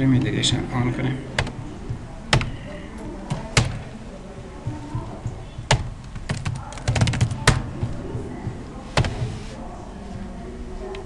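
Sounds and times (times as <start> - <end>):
keyboard keystrokes: 5.7 - 7.7.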